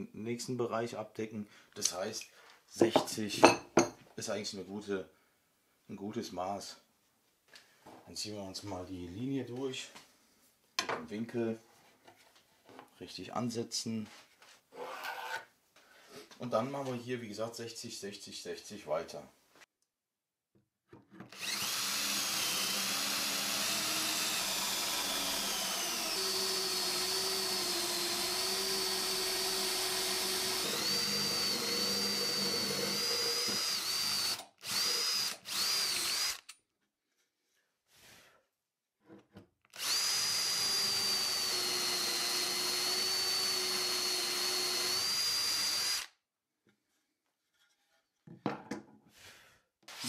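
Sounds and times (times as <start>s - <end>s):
cordless drill boring into wood: 21.3s - 36.6s, 39.7s - 46.2s.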